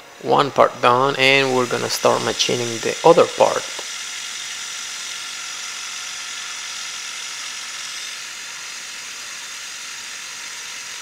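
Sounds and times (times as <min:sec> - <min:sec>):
milling machine cutting hiss: 0:00.0 - 0:11.0.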